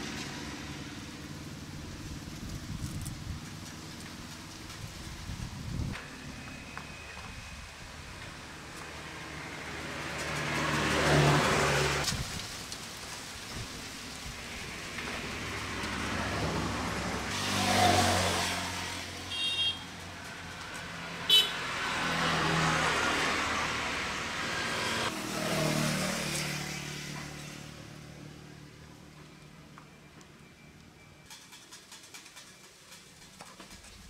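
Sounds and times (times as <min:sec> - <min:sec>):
vehicles passing: 0:00.0 - 0:34.0
short horn beeps: 0:19.3 - 0:19.8.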